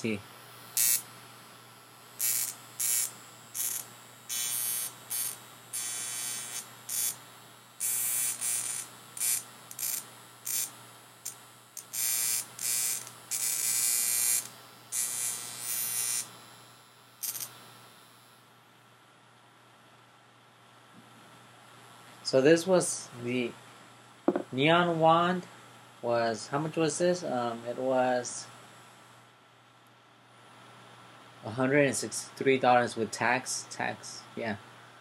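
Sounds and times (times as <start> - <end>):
electric wand buzzing and crackling: 0.0 - 18.5.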